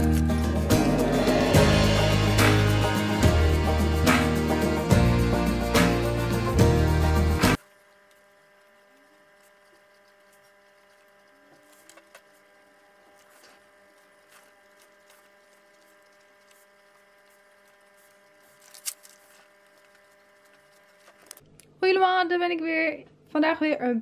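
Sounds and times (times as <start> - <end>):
low electrical hum: 7.6 - 24.0.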